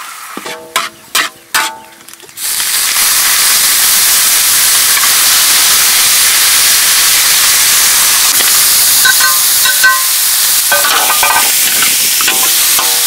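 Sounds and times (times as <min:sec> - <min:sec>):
food sizzling in hot oil: 0:02.4 - 0:13.0
metallic clinks against wok: 0:09.0 - 0:13.0.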